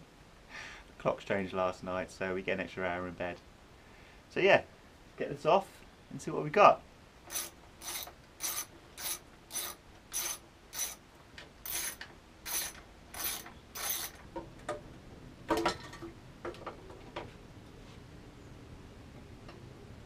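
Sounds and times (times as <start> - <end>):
ratchet wrench clicking: 7.3 - 11.0, 11.6 - 14.2.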